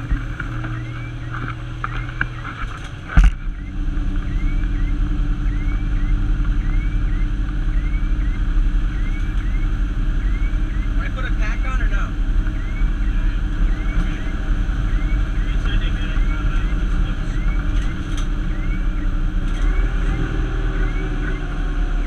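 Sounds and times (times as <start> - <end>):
truck engine and road rumble: 0.0 - 22.0.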